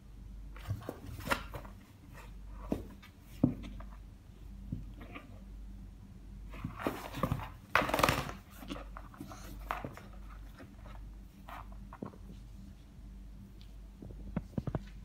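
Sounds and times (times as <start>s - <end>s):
cats scuffling on cardboard: 0.6s - 4.0s, 6.4s - 12.9s.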